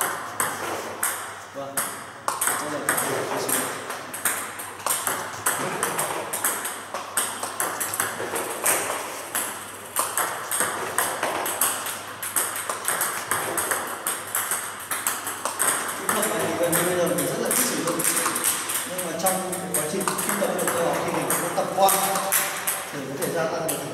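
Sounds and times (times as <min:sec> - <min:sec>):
table tennis balls clicking: 0:00.0 - 0:23.9.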